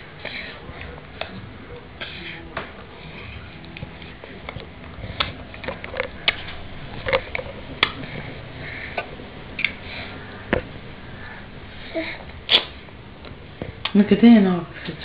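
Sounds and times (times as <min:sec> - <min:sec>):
baby sucking and lip smacking: 0:12.4 - 0:12.8.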